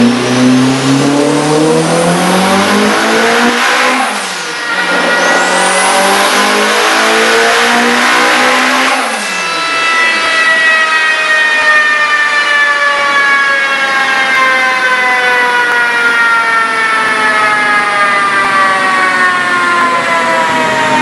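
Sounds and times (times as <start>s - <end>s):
car engine winding down: 0.0s - 11.5s.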